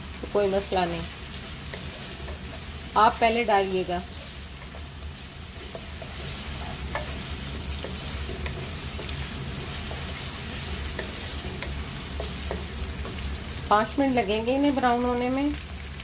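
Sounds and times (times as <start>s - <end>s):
onions sizzling in oil: 0.0s - 16.0s
wooden spatula scraping pan: 4.0s - 13.6s.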